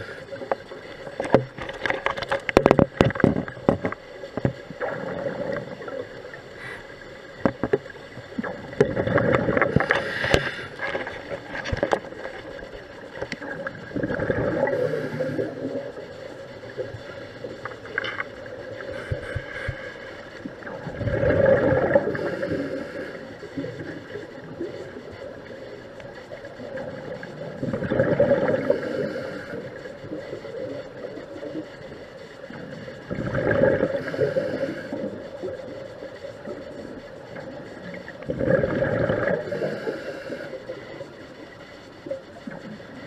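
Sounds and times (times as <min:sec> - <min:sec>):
sharp clicks and knocks: 0:00.4 - 0:04.6, 0:07.4 - 0:07.9
underwater regulator bubbling exhalations: 0:04.8 - 0:06.0, 0:08.4 - 0:12.0, 0:13.4 - 0:16.0, 0:20.6 - 0:22.8, 0:26.8 - 0:29.7, 0:33.1 - 0:35.2, 0:38.1 - 0:40.3.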